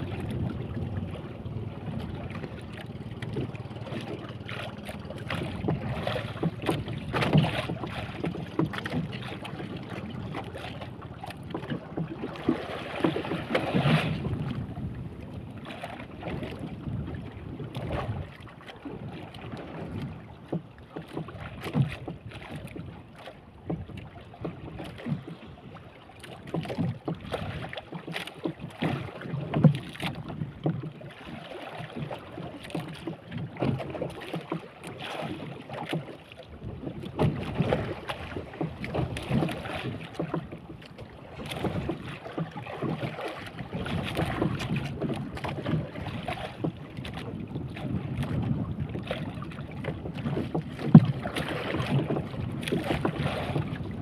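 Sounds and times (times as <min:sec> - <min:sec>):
knocks on wooden boat: 0:00.0 - 0:15.2, 0:19.6 - 0:22.9, 0:26.3 - 0:31.0, 0:31.8 - 0:54.0
wind buffeting microphone: 0:00.0 - 0:18.4, 0:43.6 - 0:54.0
water slapping against boat hull: 0:00.0 - 0:54.0.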